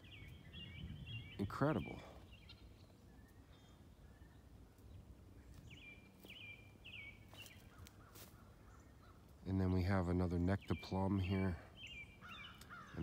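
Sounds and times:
faint songbird chirping: 0.0 - 13.0.

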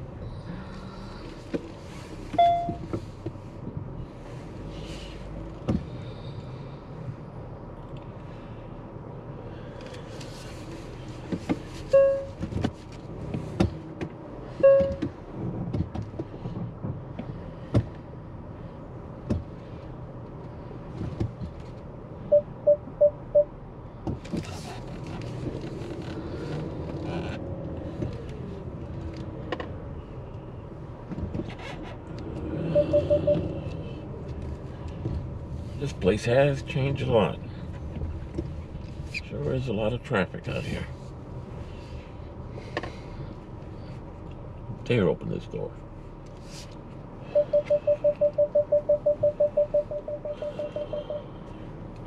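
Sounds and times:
car engine and road hum: 0.0 - 52.0
short beeps: 2.4 - 2.8, 11.9 - 12.3, 14.6 - 15.0, 22.3 - 23.5, 32.6 - 33.6, 47.3 - 51.3.

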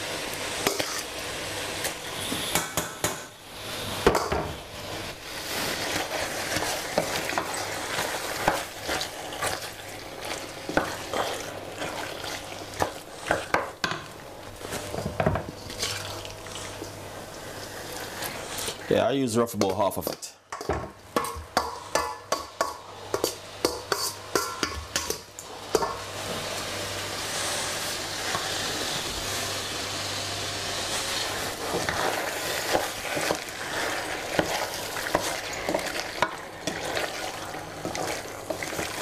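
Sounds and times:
chicken sizzling in pot: 0.0 - 19.2, 20.9 - 39.0.

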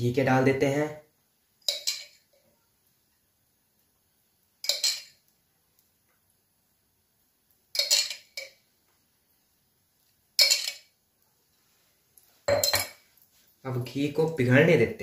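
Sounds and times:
metal spoon clinking on steel pan: 1.6 - 2.4, 4.6 - 5.2, 7.7 - 8.6, 10.4 - 10.9, 12.5 - 13.0.

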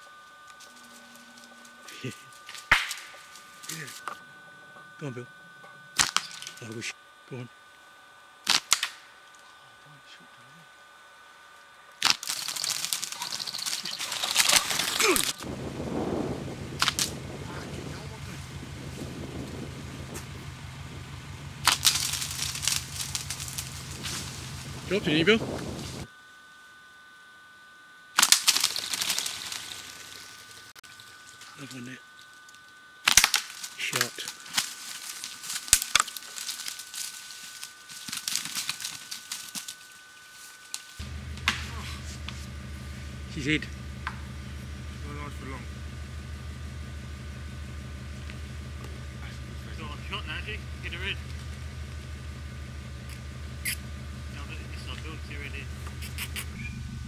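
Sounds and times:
low steady hum: 0.0 - 57.0
twigs and dry leaves crackling: 5.9 - 6.8, 8.4 - 9.5, 12.0 - 15.8, 16.4 - 26.1, 28.2 - 45.1, 45.7 - 54.6
bird flapping in twigs: 12.0 - 15.4, 16.7 - 17.2, 21.5 - 26.0, 28.2 - 31.7, 33.1 - 41.0.

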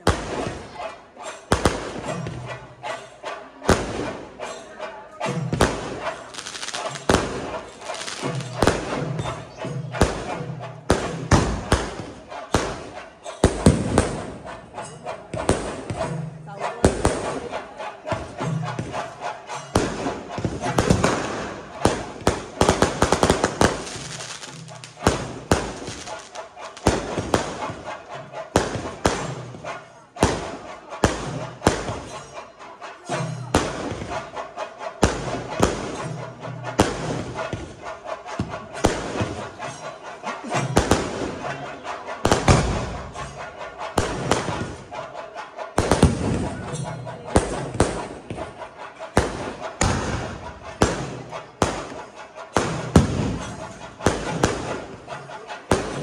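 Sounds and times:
firework bangs: 0.0 - 0.8, 1.4 - 2.4, 3.7 - 4.7, 5.5 - 9.4, 10.0 - 14.6, 15.4 - 16.0, 16.8 - 17.6, 18.2 - 32.4, 33.5 - 34.3, 35.0 - 36.1, 36.7 - 37.8, 38.4 - 39.5, 40.5 - 41.5, 42.2 - 44.8, 45.8 - 46.8, 49.2 - 55.1, 55.7 - 56.0
firework crackling: 5.6 - 9.0, 19.7 - 29.3.

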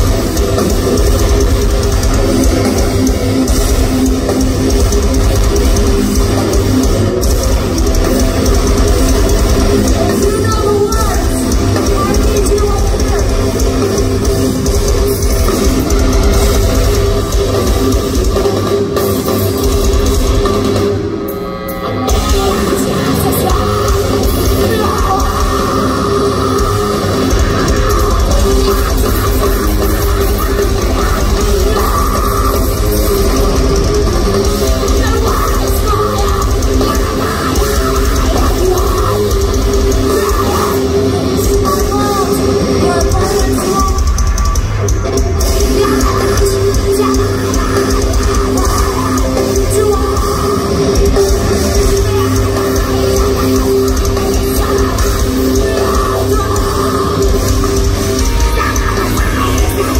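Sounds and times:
bass guitar: 0.0 - 59.9
distorted guitars: 0.0 - 59.9
pounding drum kit: 0.0 - 59.9
woman singing: 8.7 - 16.0, 22.0 - 44.4, 45.4 - 59.9.

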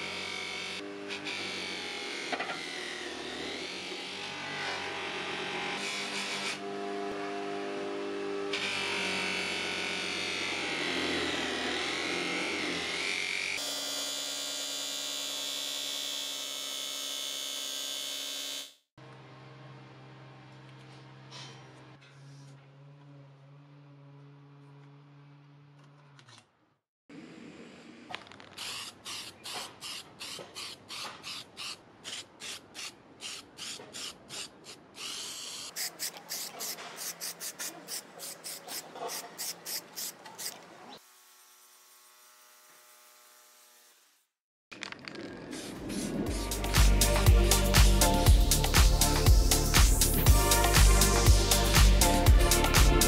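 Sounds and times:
spray can hissing: 28.6 - 40.6.

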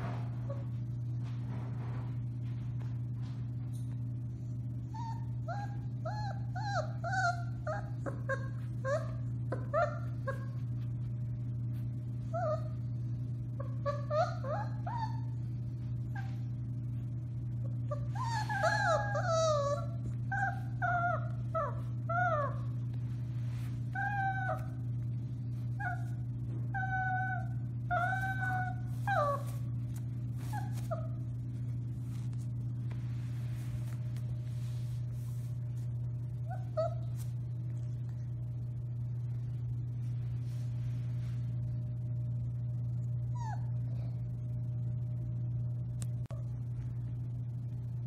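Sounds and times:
puppy howling: 4.9 - 10.7, 12.2 - 13.0, 13.6 - 15.5, 17.9 - 22.9, 23.9 - 25.0, 25.6 - 29.7, 36.4 - 37.2, 43.3 - 43.8.

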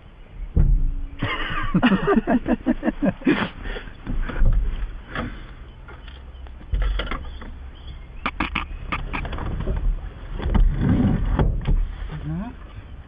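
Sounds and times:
low rumble: 0.0 - 3.3.

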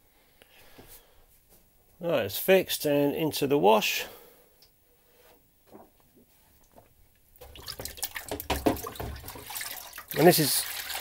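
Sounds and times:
water sloshing in a plastic tray: 6.7 - 11.0.

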